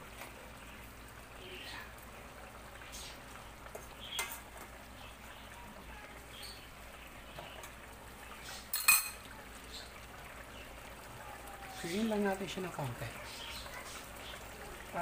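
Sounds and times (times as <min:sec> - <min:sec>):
cutlery clinking on plate: 0:08.7 - 0:09.2.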